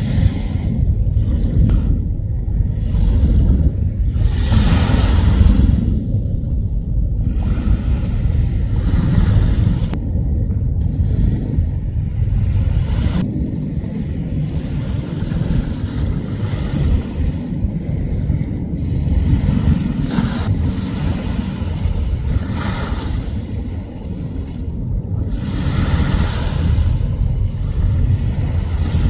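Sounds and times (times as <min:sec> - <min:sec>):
waves washing on shore: 0:00.0 - 0:10.2, 0:10.8 - 0:29.0
wind rumbling on microphone: 0:00.0 - 0:29.0.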